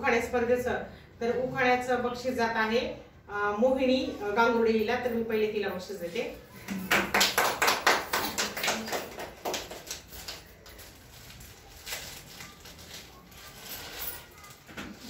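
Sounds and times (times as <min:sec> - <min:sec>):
small group clapping: 0:06.6 - 0:10.7.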